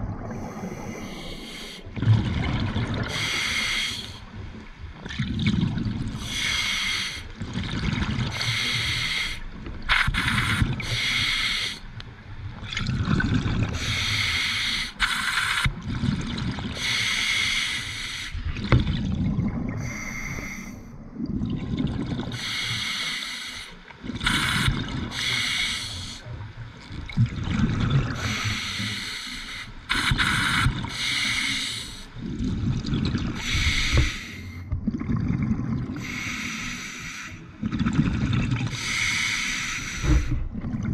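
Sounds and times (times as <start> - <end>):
exhaled air bubbling: 0.0 - 23.1, 23.9 - 40.9
diver inhaling through regulator: 3.1 - 4.2, 8.4 - 11.8, 13.8 - 15.7, 19.8 - 20.9, 28.2 - 32.1, 33.4 - 34.7, 36.0 - 37.4, 38.7 - 40.4.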